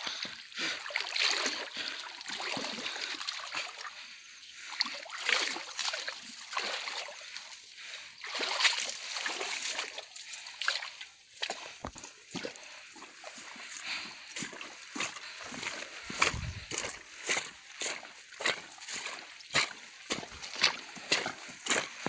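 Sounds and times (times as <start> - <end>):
boots squelching in mud: 8.2 - 22.0.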